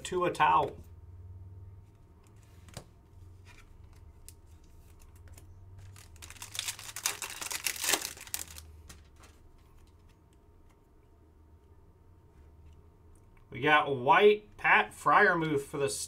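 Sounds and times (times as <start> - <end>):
cards rustling and clicking: 2.2 - 10.8
foil wrapper crinkling and tearing: 4.9 - 9.4.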